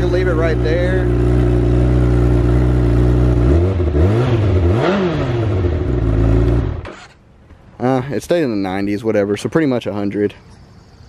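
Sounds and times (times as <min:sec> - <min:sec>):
motorcycle engine idling: 0:00.0 - 0:04.0
motorcycle engine revving: 0:00.0 - 0:07.2.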